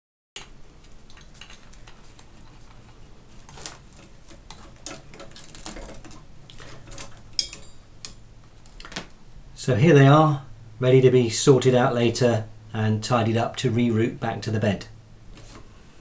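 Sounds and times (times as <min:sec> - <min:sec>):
cable handling clicks and rustles: 0:00.4 - 0:09.2.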